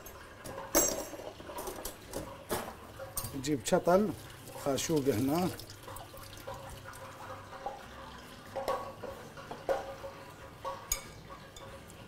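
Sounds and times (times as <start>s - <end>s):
spoon clinking against glass bowl: 10.6s - 11.9s.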